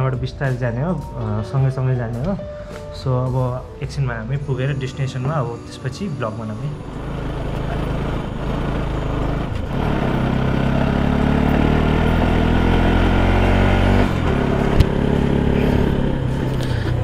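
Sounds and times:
motorcycle engine running: 6.7 - 17.0.

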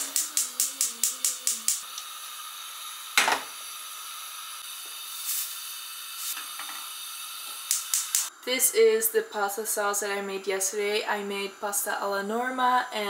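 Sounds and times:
steady hiss: 0.0 - 8.6.

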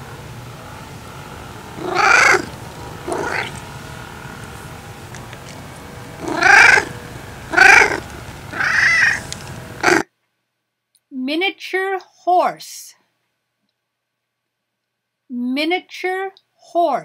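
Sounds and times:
cat meowing: 1.8 - 2.5, 3.1 - 3.6, 6.2 - 6.9, 7.5 - 10.0.

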